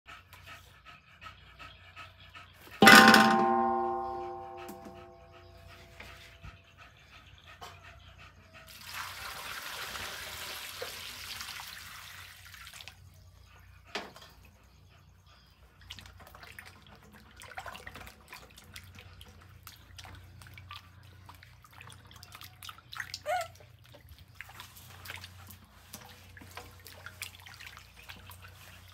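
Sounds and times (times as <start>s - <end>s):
steel wok ringing: 2.8s - 5.2s
water pouring into wok: 8.7s - 12.9s
faint water splashing: 15.8s - 28.9s.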